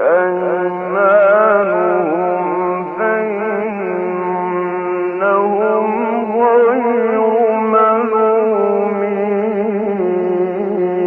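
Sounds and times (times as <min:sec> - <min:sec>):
man chanting recitation: 0:00.0 - 0:11.0.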